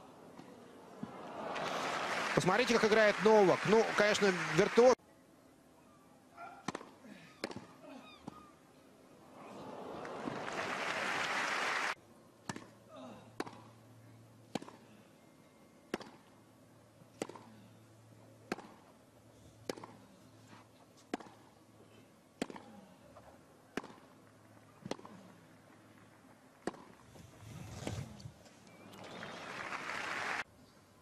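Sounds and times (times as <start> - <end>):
crowd noise: 0.0 - 5.0, 9.1 - 12.0, 28.7 - 30.4
tennis ball struck by racket: 14.5 - 14.8, 18.5 - 18.8, 19.6 - 20.0, 21.1 - 21.4, 22.4 - 22.6, 23.7 - 24.0, 26.6 - 26.9.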